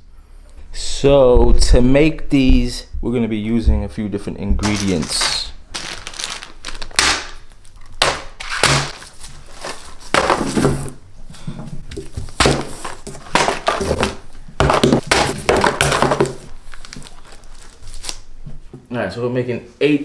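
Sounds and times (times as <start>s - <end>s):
crinkly candy bag rustling: 4.6s - 10.2s, 15.1s - 18.3s.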